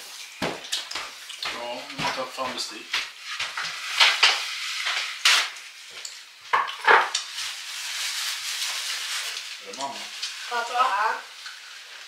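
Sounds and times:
steady hiss: 0.0 - 12.0
dishes and utensils clattering: 6.5 - 7.2.

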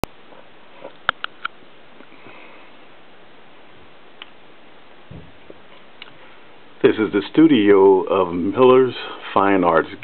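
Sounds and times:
recording hiss: 0.0 - 10.0
soft low knock: 5.1 - 5.6.

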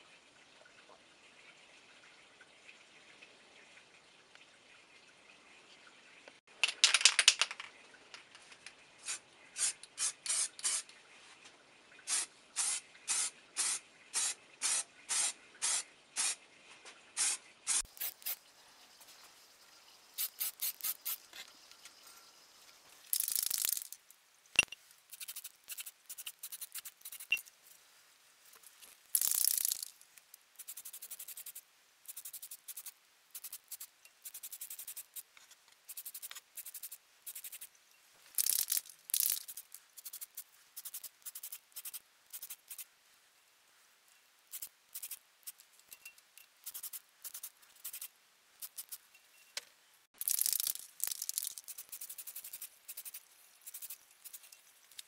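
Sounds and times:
aerosol can spraying: 12.1 - 16.4, 17.2 - 18.4, 20.2 - 21.3, 25.1 - 27.3, 30.6 - 35.2, 35.9 - 37.7, 38.4 - 42.8, 44.5 - 45.6, 46.6 - 49.0, 50.2 - 54.5.

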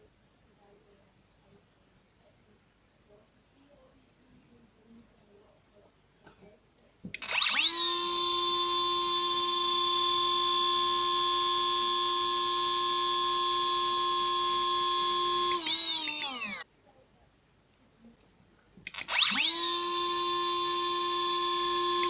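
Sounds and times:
electric motor whine: 7.2 - 16.6, 19.0 - 22.0.

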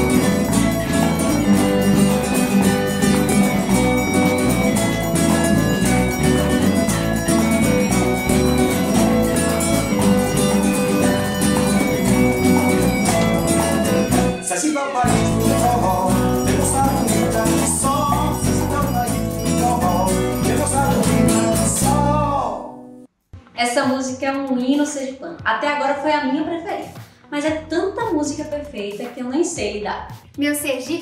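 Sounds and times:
band playing a song: 0.0 - 22.2
man singing: 13.6 - 22.8.

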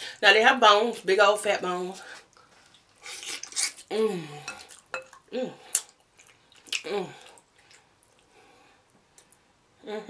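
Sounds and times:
woman humming: 3.9 - 4.5, 6.9 - 7.3
wet lip-smacking: 5.7 - 8.3.

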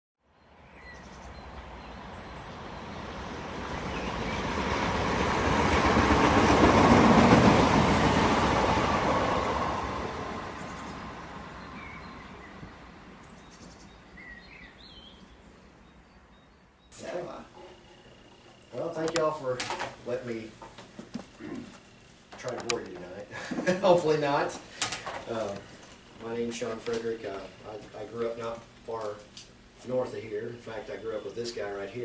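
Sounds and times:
train passing by: 0.6 - 16.4.

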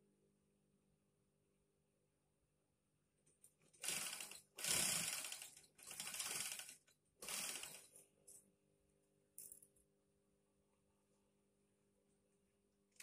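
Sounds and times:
sewing machine stitching: 3.6 - 8.0.

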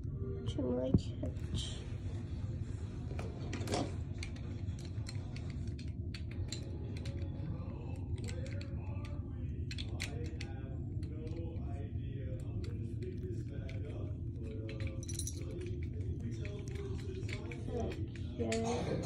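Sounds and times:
collar tags clinking: 14.6 - 18.7.

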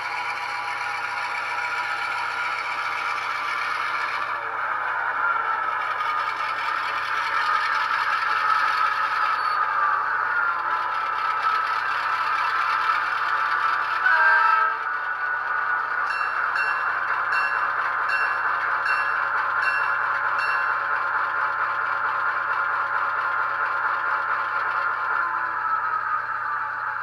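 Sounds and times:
bell ringing: 16.1 - 20.9.

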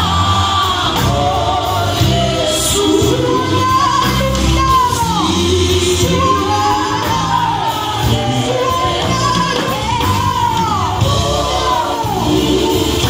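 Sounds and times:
vocal group singing: 0.0 - 13.0.

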